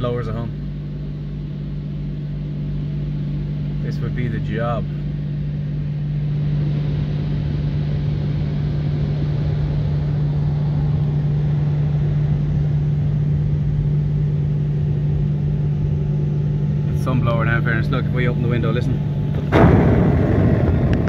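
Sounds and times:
car wash blowers drone: 0:00.0 - 0:21.0.

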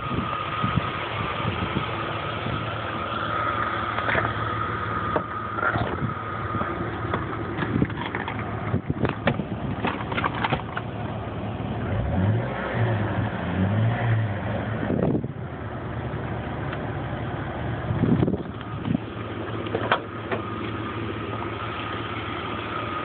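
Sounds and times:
car engine idling: 0:00.0 - 0:23.0
sharp clicks and knocks: 0:07.1 - 0:10.9, 0:19.6 - 0:20.5.

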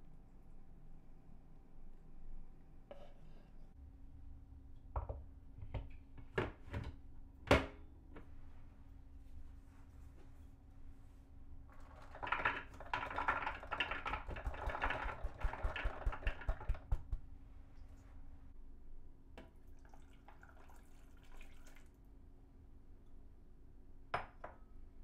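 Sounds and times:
beans rattling into plastic bowl: 0:11.8 - 0:17.0
water trickling into bowl: 0:19.6 - 0:22.0.

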